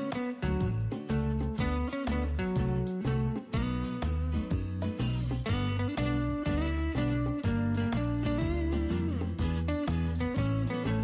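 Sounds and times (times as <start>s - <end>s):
background music: 0.0s - 11.0s
jingle bells shaking: 0.0s - 11.0s.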